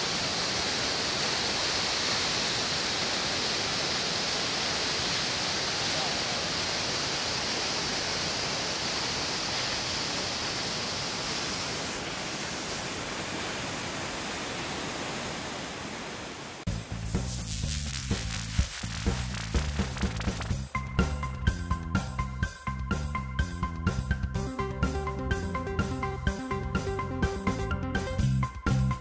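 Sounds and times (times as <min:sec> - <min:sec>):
waterfall rushing: 0:00.0 - 0:16.9.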